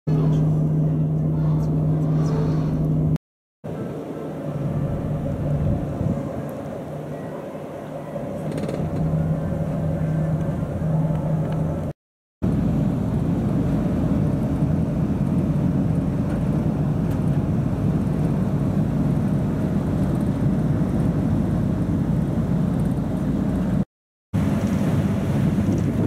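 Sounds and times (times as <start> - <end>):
ferry engines droning: 0.1 - 23.8
wind: 0.1 - 26.0
water rushing: 3.7 - 11.9, 24.4 - 26.0.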